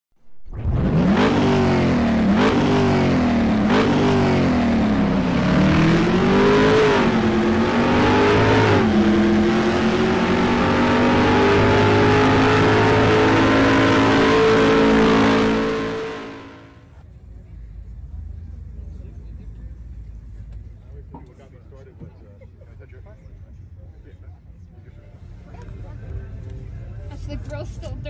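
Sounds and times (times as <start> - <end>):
car engine revving and accelerating: 0.5 - 16.8.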